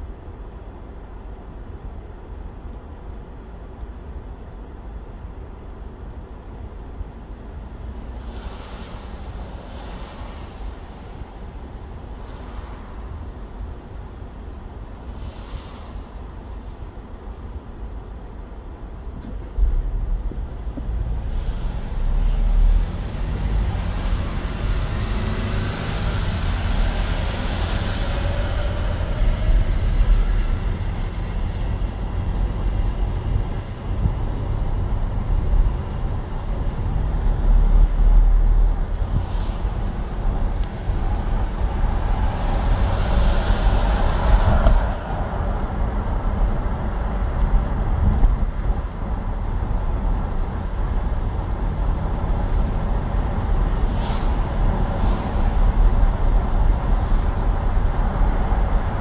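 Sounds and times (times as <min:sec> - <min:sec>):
engine and tyres rumbling: 0:00.0 - 0:59.0
hiss of water from tyres: 0:08.1 - 0:11.0, 0:12.2 - 0:13.2, 0:15.0 - 0:16.4, 0:21.2 - 0:23.2, 0:38.9 - 0:44.7, 0:53.6 - 0:55.6.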